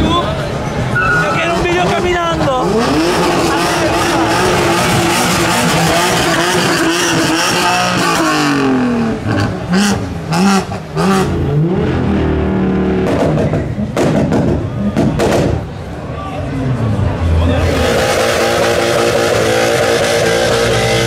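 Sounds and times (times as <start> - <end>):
tyre squeal: 0.9 - 1.6
car engine revving: 0.9 - 21.0
exhaust pops and bangs: 13.0 - 15.8.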